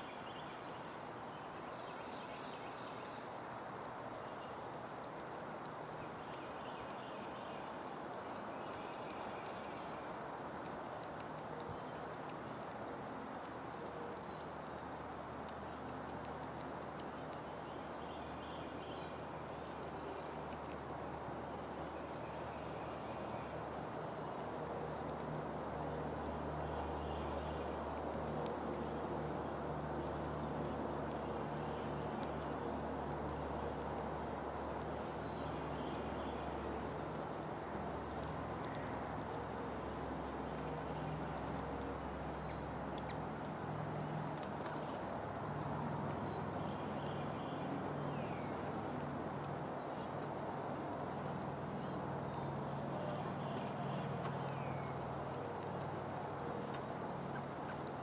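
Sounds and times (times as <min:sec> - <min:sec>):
crickets trilling: 0:00.0 - 0:58.0.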